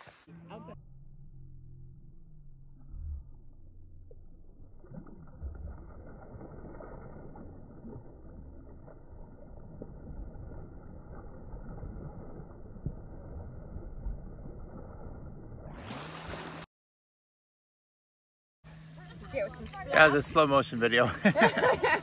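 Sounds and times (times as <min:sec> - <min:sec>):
low muffled rumble: 0:00.2 - 0:15.6.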